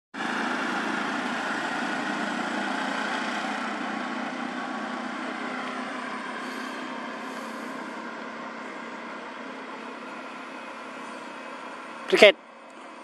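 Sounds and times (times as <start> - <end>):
steady engine-like hum: 0.2 - 13.0.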